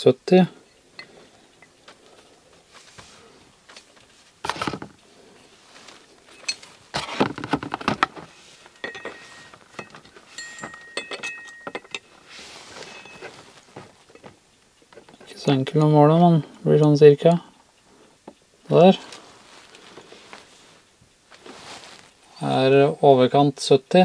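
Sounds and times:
scraping rustles of handling: 2.0 - 14.4, 18.7 - 22.8
small metal clicks and clinks: 6.3 - 6.8, 8.7 - 12.2.

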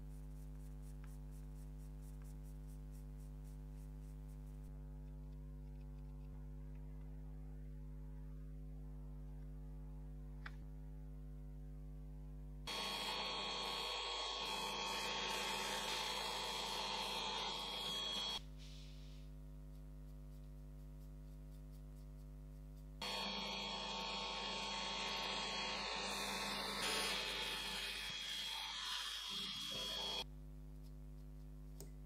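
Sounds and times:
milling machine cutting metal: 12.7 - 18.4, 23.0 - 30.2.

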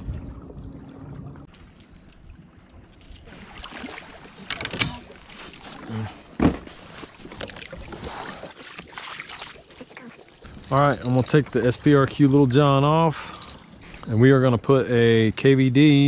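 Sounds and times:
gear handled in plastic kayak: 1.5 - 3.3, 4.3 - 5.8
thump on kayak hull: 6.4 - 6.8.

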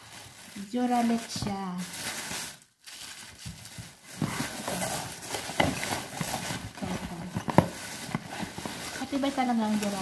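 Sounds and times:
plastic wrap crinkling: 0.0 - 10.0.

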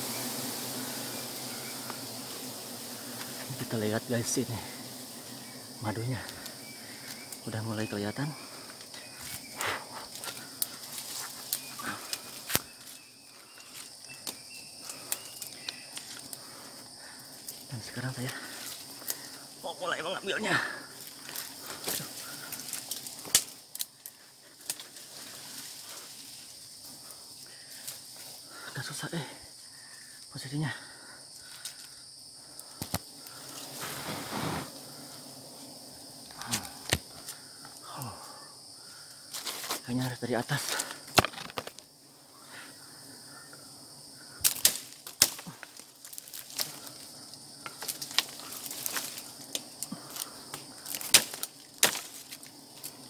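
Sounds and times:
branches and leaves rustling: 0.0 - 53.0
forest insects droning: 0.0 - 53.0
twigs snapping: 8.7 - 13.0, 13.6 - 16.5, 18.2 - 19.4, 21.0 - 26.0, 31.6 - 33.5, 36.3 - 37.4, 40.7 - 41.8, 44.4 - 53.0
sharp knocks in a tree: 36.3 - 37.3, 40.9 - 41.8, 44.4 - 46.7, 50.5 - 52.4.

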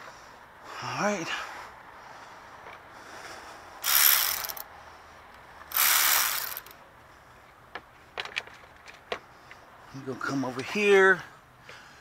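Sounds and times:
ratchet wrench clicking: 3.8 - 4.7, 5.7 - 6.8.

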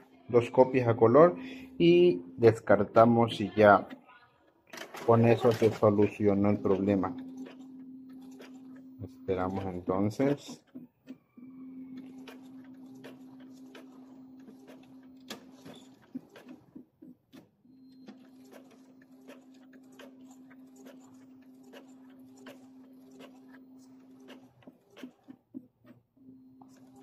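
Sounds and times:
printer motor hum: 5.0 - 16.6, 17.7 - 27.0.

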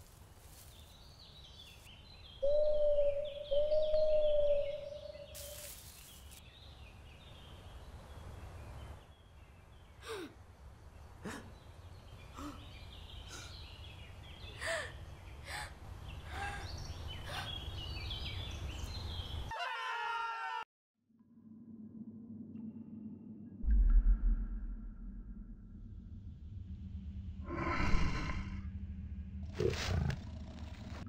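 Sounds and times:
birds chirping: 0.5 - 19.5
low rumble of wind: 21.6 - 31.0.

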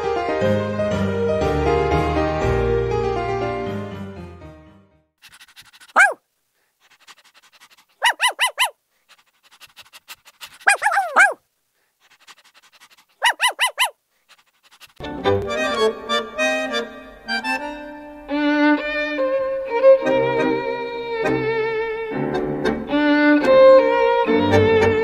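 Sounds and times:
music: 0.0 - 5.1, 15.0 - 25.0
puppies yipping: 5.3 - 6.2, 7.1 - 11.4, 12.2 - 14.0.

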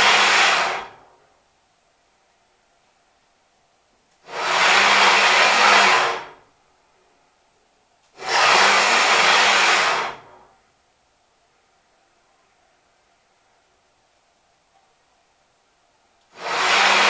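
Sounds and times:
ball screw rushing noise: 8.2 - 10.2, 16.4 - 17.0.

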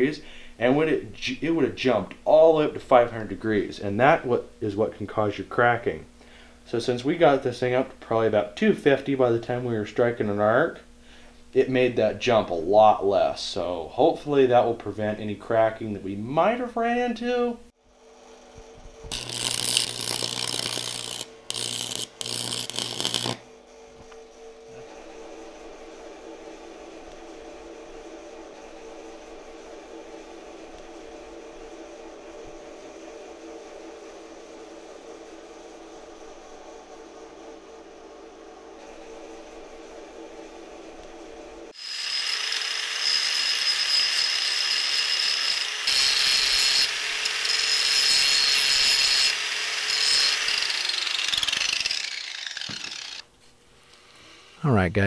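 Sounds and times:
steady hum: 17.5 - 41.8
grinding wheel grinding metal: 19.1 - 23.4, 41.8 - 53.2
welding arc crackling: 19.1 - 23.4.

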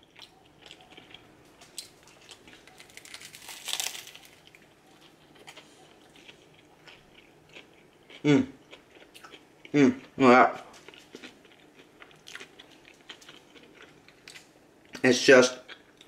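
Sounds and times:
man chewing food: 0.0 - 15.0, 15.6 - 16.0
biting into burger: 0.7 - 4.6.

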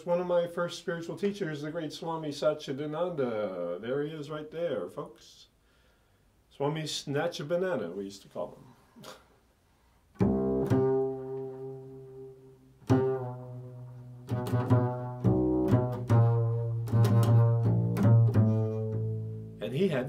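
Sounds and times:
double bass plucked: 10.2 - 20.0.

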